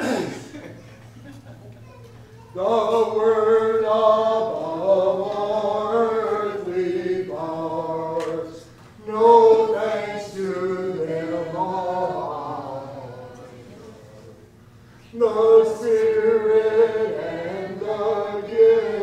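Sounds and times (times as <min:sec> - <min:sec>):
congregation singing a hymn: 0:02.5 - 0:19.0.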